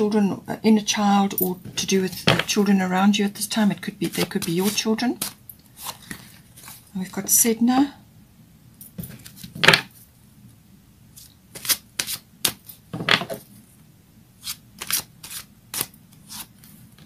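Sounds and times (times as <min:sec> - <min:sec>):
cards shuffled and slapped: 0:04.0 - 0:06.8, 0:11.2 - 0:13.4, 0:14.4 - 0:16.8.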